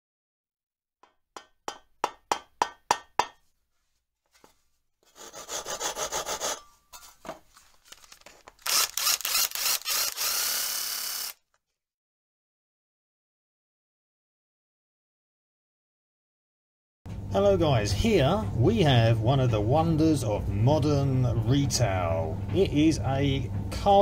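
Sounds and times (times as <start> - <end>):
rasping strokes: 4.4 - 7.2.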